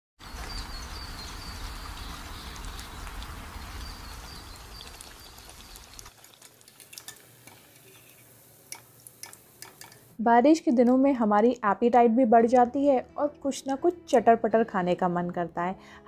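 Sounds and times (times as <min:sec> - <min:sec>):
steady rain falling: 0:00.2 - 0:07.4
bread frying in hot oil: 0:00.2 - 0:10.2.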